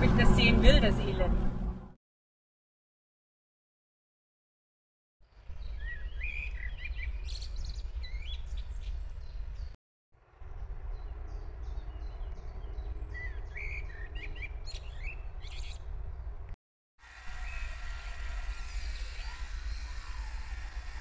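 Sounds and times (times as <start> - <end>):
steady low rumble: 0.0 - 1.9, 10.3 - 16.6
songbirds chirping: 5.3 - 9.8, 10.4 - 16.6.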